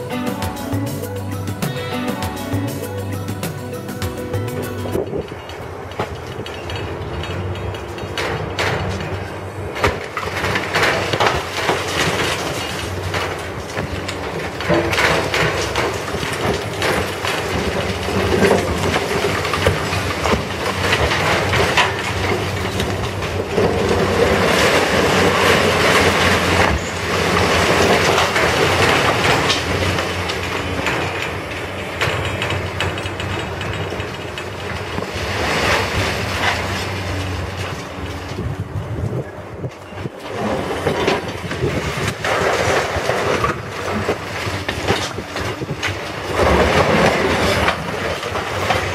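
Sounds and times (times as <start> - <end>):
crane engine humming: 0.0 - 9.8, 15.6 - 42.0
falling masonry crashing: 0.0 - 48.9.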